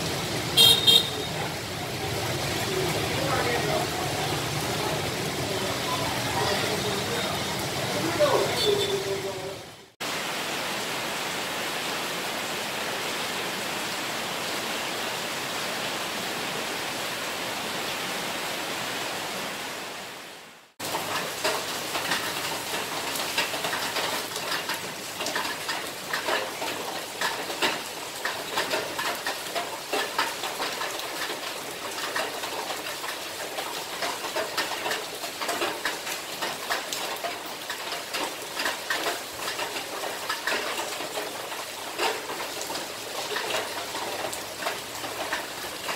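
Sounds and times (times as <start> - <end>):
steady rain hiss: 0.0 - 45.9
drips and splashes: 20.8 - 45.9.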